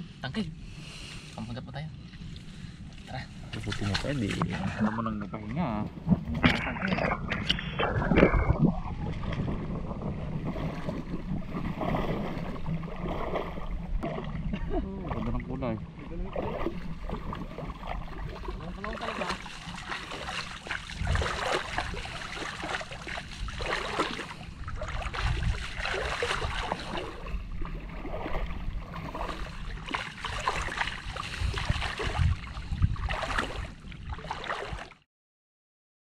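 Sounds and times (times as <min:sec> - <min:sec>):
water sloshing and splashing: 0:02.0 - 0:35.0.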